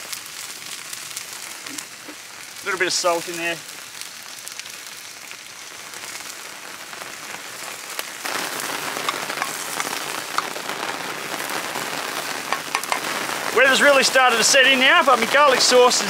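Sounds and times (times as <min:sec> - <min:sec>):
rain patter: 0:00.0 - 0:16.0
sauce simmering in a pan: 0:00.0 - 0:16.0
small pops: 0:08.3 - 0:10.9, 0:12.3 - 0:13.2.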